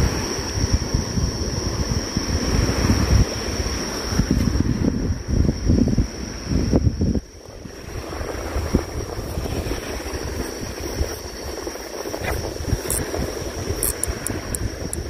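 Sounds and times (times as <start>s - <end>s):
sea noise: 0.0s - 15.0s
thin high whine: 0.0s - 15.0s
wind buffeting microphone: 0.0s - 15.0s
faint ticks: 12.2s - 13.1s, 13.7s - 15.0s.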